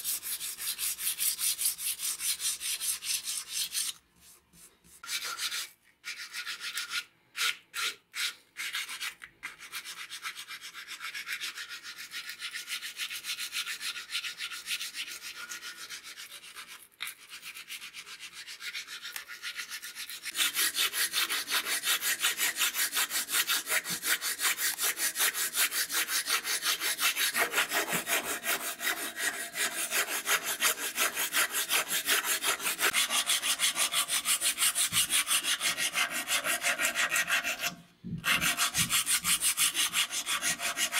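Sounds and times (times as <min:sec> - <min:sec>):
file rasping on wood: 0:17.4 - 0:40.9.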